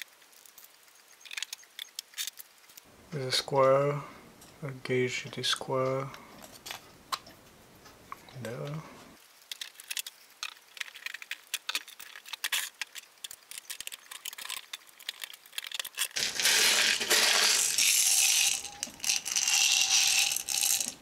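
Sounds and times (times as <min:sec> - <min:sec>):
loud plastic rattle: 0:09.5 - 0:21.0
plastic parts clicking: 0:09.5 - 0:21.0.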